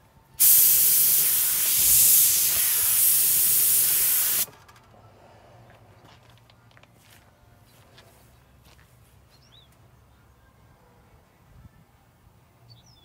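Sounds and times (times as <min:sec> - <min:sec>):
paint spray gun hissing: 0:00.4 - 0:04.5.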